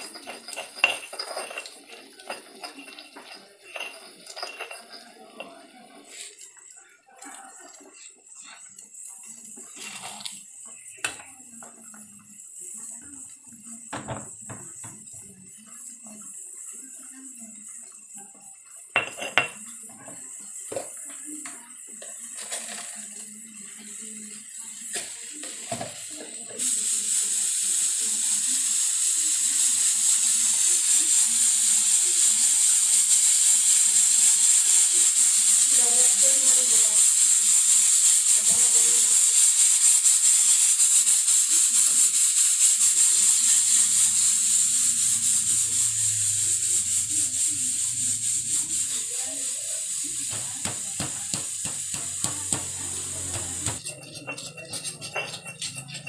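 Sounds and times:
pressure cooker steam hissing: 0.0 - 56.0
stone pestle grinding in mortar: 50.6 - 56.0.

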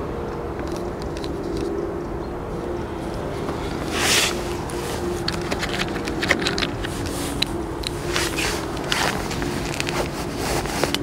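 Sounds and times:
steady low hum: 0.0 - 11.0
small clicks and scrapes: 0.6 - 1.8, 3.1 - 11.0
crunching of gravel: 3.1 - 11.0.

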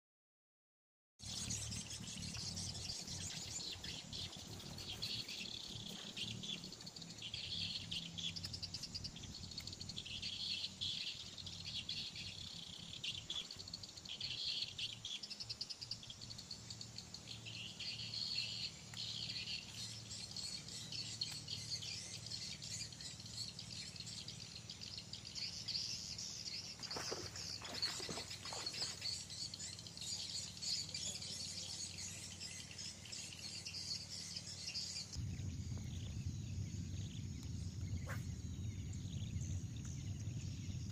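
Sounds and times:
birds chirping: 1.2 - 40.9
faint low hum: 15.6 - 40.9.

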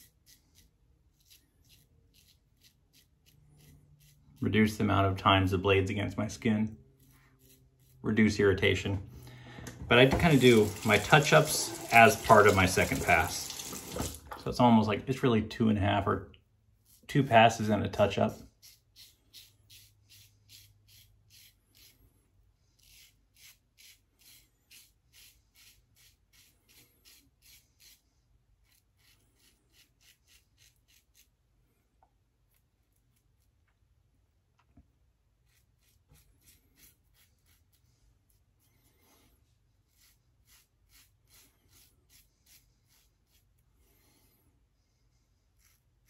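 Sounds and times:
razor scraping stubble: 0.0 - 5.2, 6.0 - 8.9, 10.2 - 14.2, 16.8 - 31.4, 35.4 - 38.9, 39.6 - 43.6, 45.5 - 46.0.

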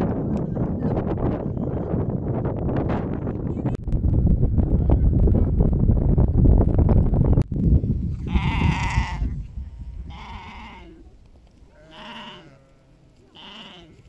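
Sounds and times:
wind rumble on microphone: 0.0 - 12.3
sheep bleating: 8.2 - 9.4, 10.0 - 11.0, 11.7 - 14.0.

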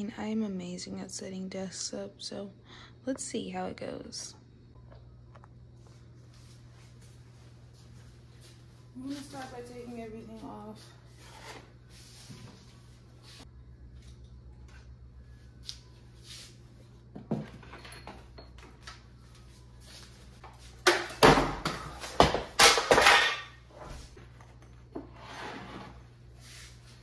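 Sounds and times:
loud clattering of desk items: 20.8 - 23.6.

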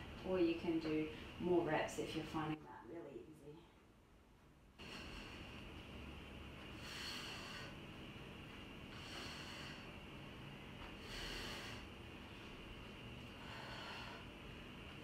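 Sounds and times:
woman breathing hard: 4.8 - 5.8, 6.6 - 7.9, 8.9 - 10.1, 10.8 - 12.6, 13.3 - 14.6.

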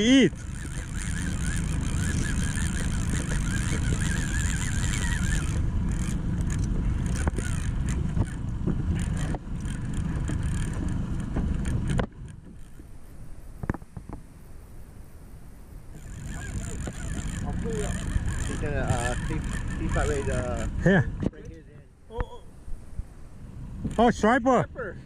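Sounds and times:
fishing reel clicking: 0.0 - 13.0, 15.9 - 21.6.

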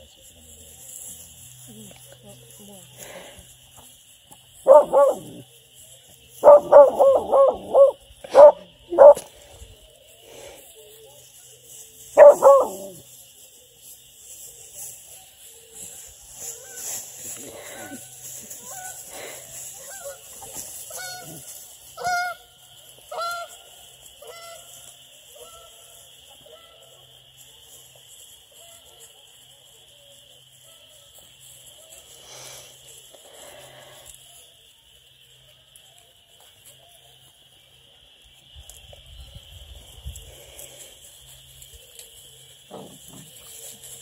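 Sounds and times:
puppy barking: 4.7 - 5.4, 6.4 - 9.3, 12.2 - 13.0.

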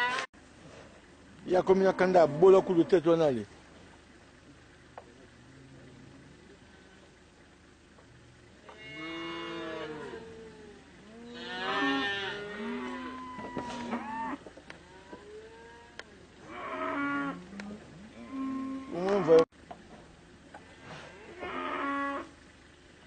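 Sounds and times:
cattle mooing: 1.8 - 3.1, 8.6 - 19.5, 21.0 - 22.3.

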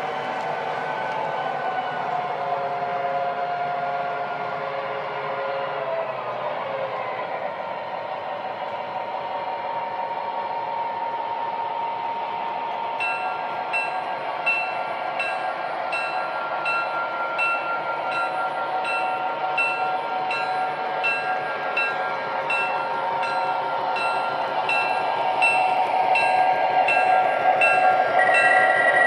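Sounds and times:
diesel engine drone: 0.0 - 29.0
rumble of running train: 0.0 - 29.0
locomotive bell ringing: 13.0 - 29.0.

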